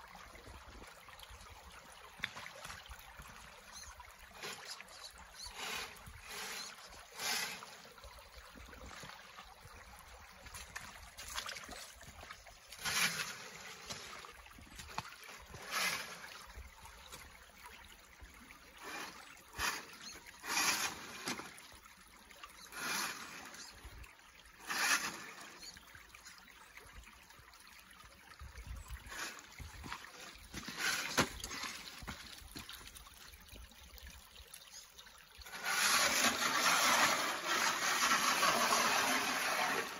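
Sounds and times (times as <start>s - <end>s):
creek running: 0.0s - 39.9s
toy car driving over stones: 35.5s - 39.9s.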